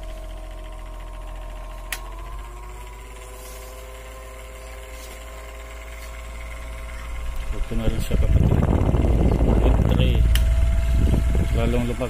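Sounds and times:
fan motor humming: 0:00.0 - 0:12.0
fan button click: 0:01.8 - 0:02.2, 0:09.2 - 0:10.7.

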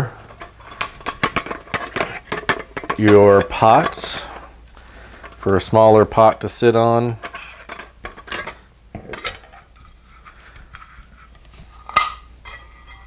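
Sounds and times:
metal pots clinking and scraping: 0:00.0 - 0:13.0.

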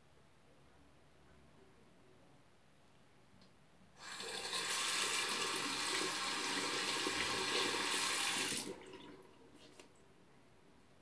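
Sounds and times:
tap water running into sink: 0:04.0 - 0:09.2.

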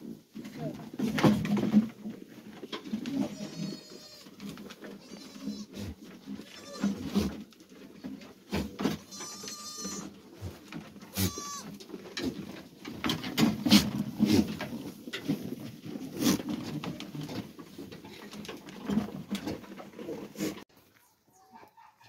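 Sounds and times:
goats shuffling and rustling: 0:00.0 - 0:21.9
goat bleat: 0:03.2 - 0:07.2, 0:08.9 - 0:10.2, 0:11.1 - 0:11.7.

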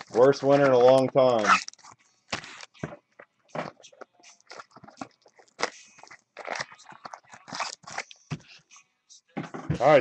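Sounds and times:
foil packs crinkling: 0:00.0 - 0:02.8, 0:04.4 - 0:08.2.

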